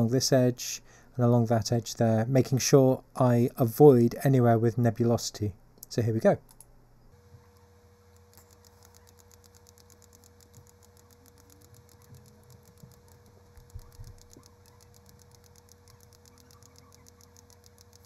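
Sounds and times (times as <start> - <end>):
low electrical hum: 0.0 - 18.0
computer mouse clicking: 7.5 - 18.0.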